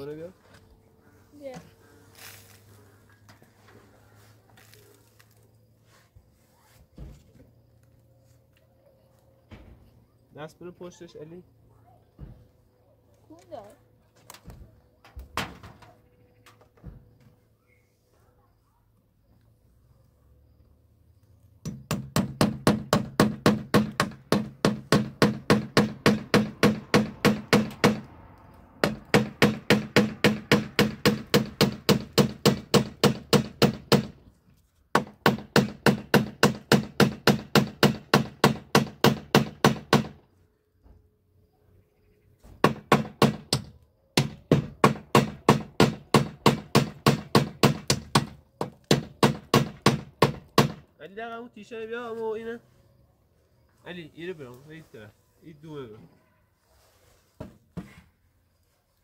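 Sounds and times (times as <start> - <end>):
hammering on wooden board wall: 21.6 - 28.1, 28.8 - 34.2, 34.9 - 40.3, 42.6 - 50.9.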